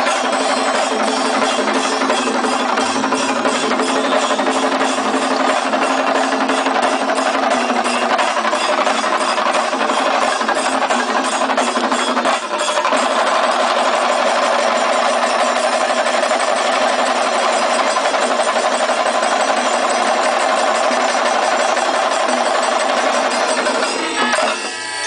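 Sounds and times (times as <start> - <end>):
drum ensemble beating fast: 0.0 - 25.0.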